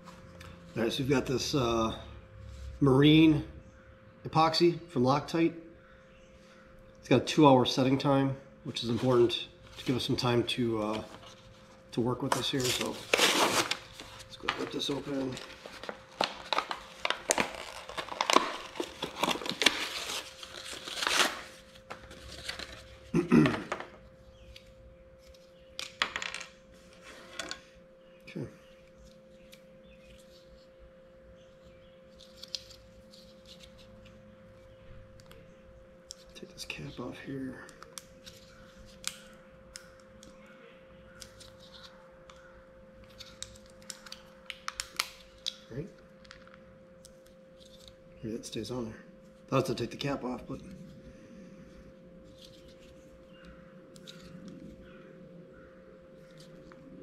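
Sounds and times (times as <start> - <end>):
faint steady hum: 0.0 - 57.0
plastic blister pack tearing: 12.3 - 22.9, 43.1 - 45.6.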